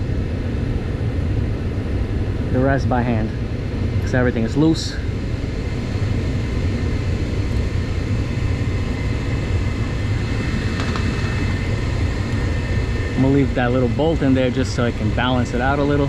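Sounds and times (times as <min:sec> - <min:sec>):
faint high whine: 0:00.0 - 0:16.0
heating equipment hum: 0:00.0 - 0:16.0.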